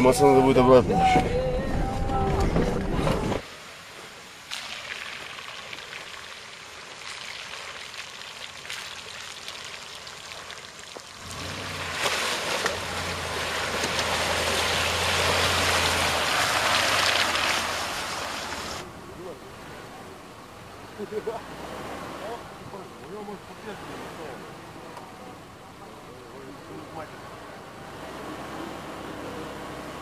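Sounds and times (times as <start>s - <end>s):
water splashing around tyres: 3.4s - 25.0s
car engine humming low: 9.0s - 30.0s.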